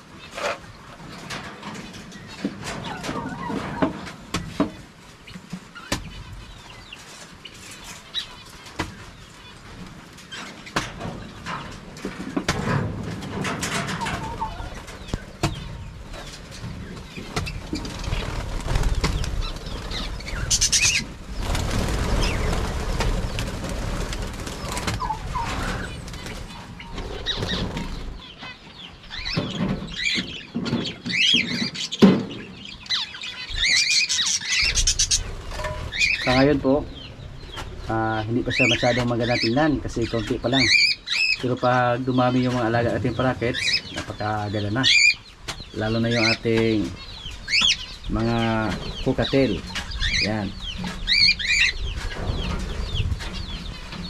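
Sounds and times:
parakeets flapping wings: 16.2 - 28.3, 34.2 - 36.3.

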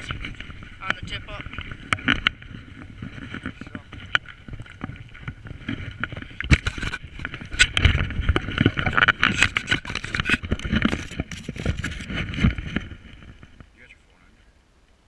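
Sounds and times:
camera handling knocks and scrapes: 3.2 - 13.6.

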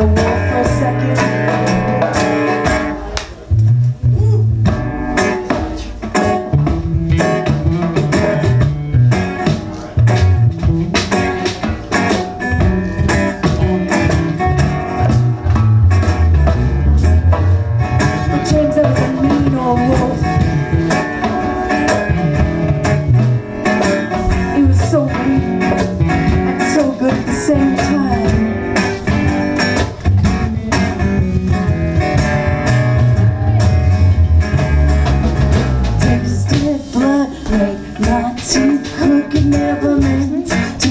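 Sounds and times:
acoustic guitar: 0.0 - 40.9
drums: 0.0 - 40.9
electric bass: 0.0 - 40.9.

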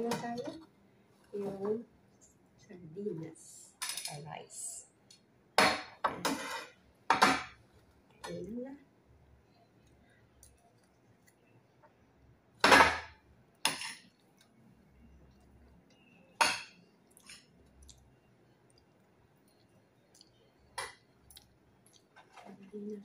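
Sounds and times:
cutlery scraping on plate: 6.1 - 7.4, 13.7 - 14.1.

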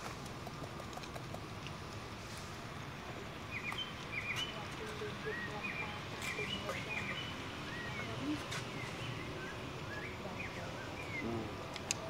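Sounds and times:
steady background hiss: 0.0 - 12.0
small birds chirping: 3.1 - 12.0.

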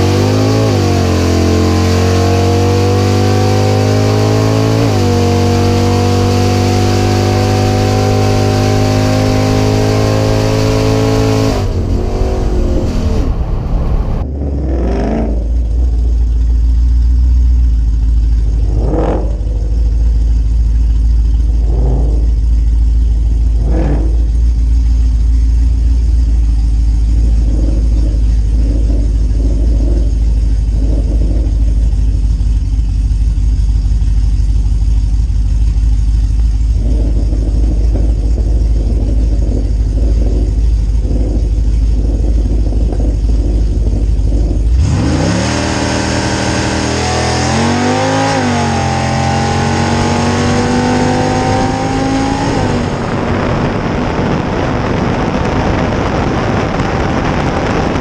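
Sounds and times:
racing engine at high revs: 0.0 - 15.9, 18.6 - 20.1, 21.5 - 22.6, 23.4 - 24.5, 36.7 - 58.0
pickup engine idling with throttle blips: 15.2 - 58.0.

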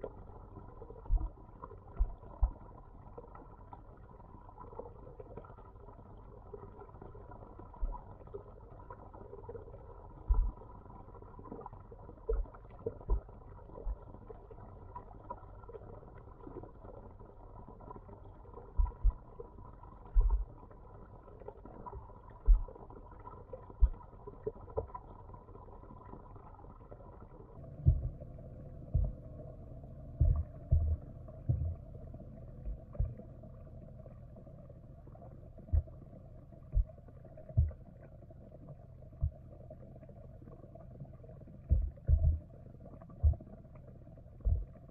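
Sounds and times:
low underwater hum: 0.0 - 44.9
dull underwater thumps: 2.0 - 2.6, 10.3 - 10.6, 18.7 - 19.2, 20.1 - 20.5, 22.4 - 22.8, 23.8 - 24.0, 27.7 - 29.4, 30.1 - 31.9, 32.6 - 33.2, 35.7 - 36.0, 36.7 - 37.8, 39.2 - 39.4, 41.6 - 42.5, 43.2 - 43.5, 44.4 - 44.8.

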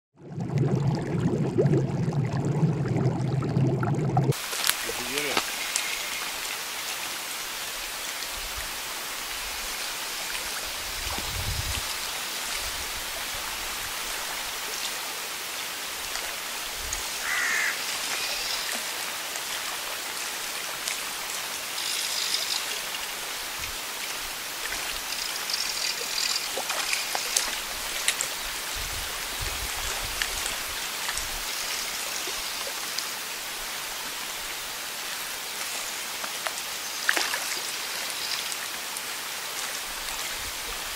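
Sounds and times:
wind hiss: 4.3 - 19.9, 21.0 - 36.0
wind gusts buffeting microphone: 10.8 - 11.9.

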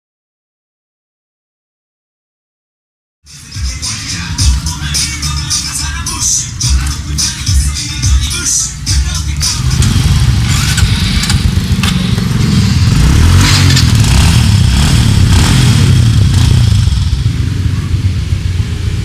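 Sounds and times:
small motorbike engine revving: 9.4 - 17.4.

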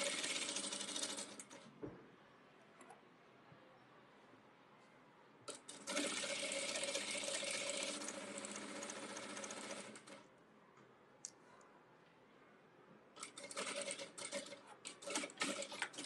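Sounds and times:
sewing machine stitching: 0.0 - 1.7, 5.5 - 10.2, 13.2 - 16.0.

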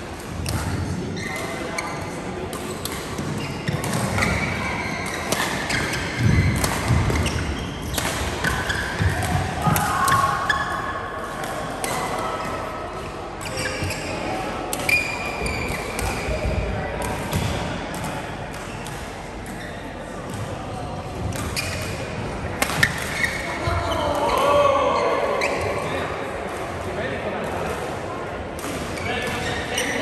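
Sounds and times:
sneakers squeaking on gym floor: 0.5 - 9.5, 10.5 - 11.0, 13.4 - 26.0, 28.8 - 30.0
racket striking shuttlecock: 5.2 - 10.3.

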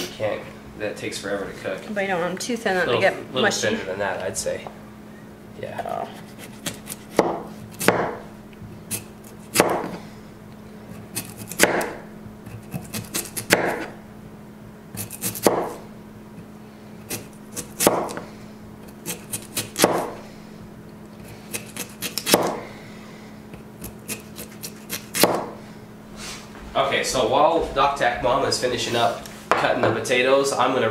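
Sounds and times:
knife knocking on cutting board: 7.2 - 8.2.

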